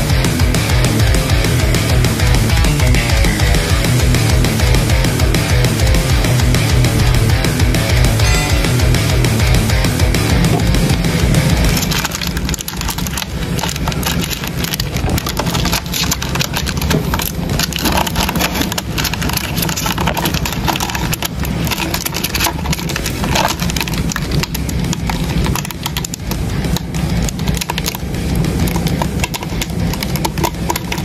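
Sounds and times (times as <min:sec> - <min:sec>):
steady low hum: 0:00.0 - 0:31.0
beetles scratching and clicking on wood: 0:11.5 - 0:31.0.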